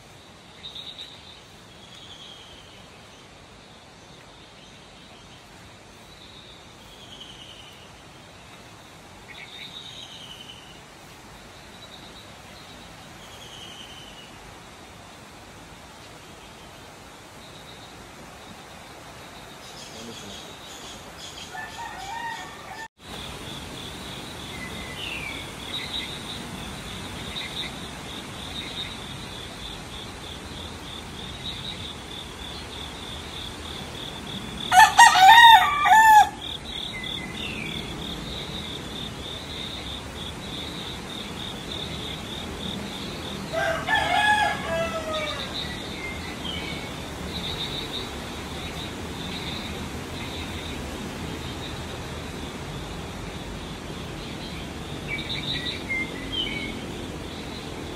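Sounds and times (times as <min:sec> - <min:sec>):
rooster crowing: 0:21.5 - 0:22.9, 0:34.7 - 0:36.6, 0:43.5 - 0:45.7.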